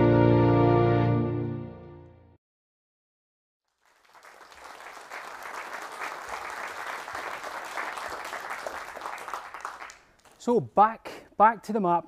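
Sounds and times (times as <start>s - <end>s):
audience applause: 3.7s - 10.4s.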